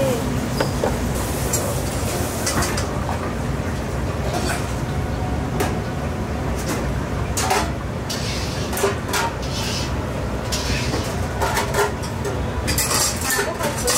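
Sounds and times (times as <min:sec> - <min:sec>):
dishes and utensils clattering: 0:02.4 - 0:02.9, 0:04.3 - 0:04.8, 0:06.6 - 0:09.8, 0:10.5 - 0:13.9.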